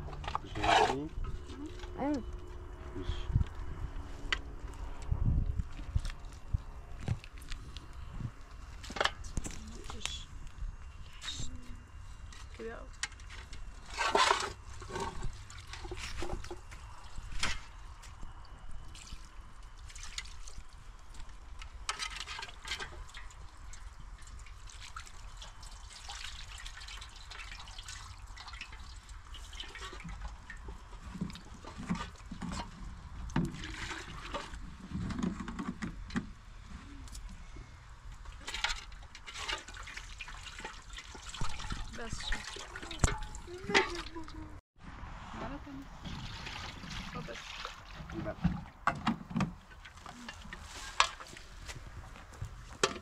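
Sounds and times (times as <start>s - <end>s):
water pouring into metal pot: 39.3s - 44.1s
water splashing: 39.3s - 44.6s, 46.0s - 48.8s.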